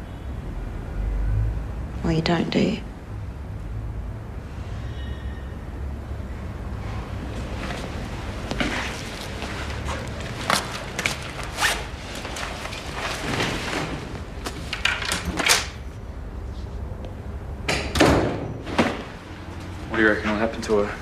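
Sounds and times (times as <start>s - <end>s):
clothing rustling: 7.3s - 14.8s.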